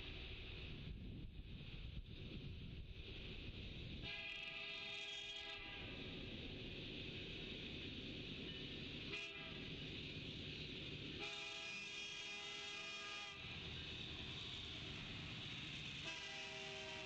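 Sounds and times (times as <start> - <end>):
approaching train noise: 0.0 - 17.0
locomotive air horn blasts: 4.0 - 6.0, 9.1 - 9.7, 11.2 - 13.6, 16.0 - 17.0.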